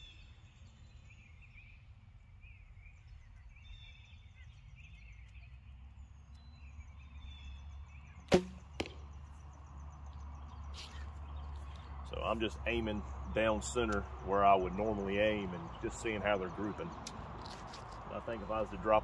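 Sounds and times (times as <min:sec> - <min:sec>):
faint birdsong: 0:00.0 - 0:19.0
arrow striking target: 0:08.3 - 0:09.2.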